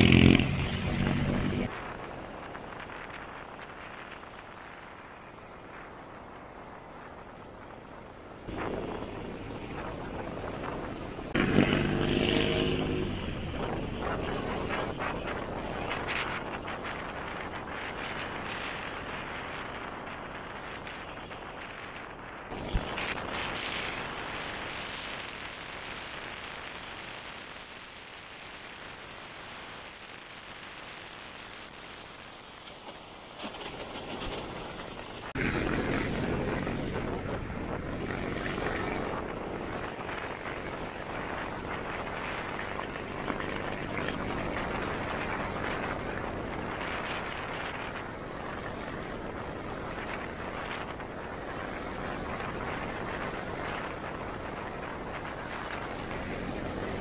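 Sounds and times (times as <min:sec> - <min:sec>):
motorcycle engine running: 0:00.0 - 0:01.7, 0:08.5 - 0:16.5, 0:35.3 - 0:47.2
wind rush while riding: 0:00.0 - 0:57.0.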